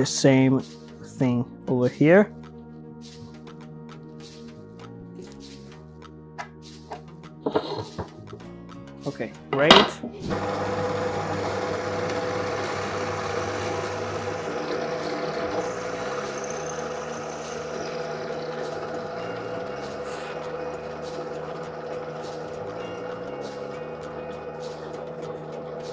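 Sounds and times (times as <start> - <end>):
drill press drilling wood: 10.2 - 25.9.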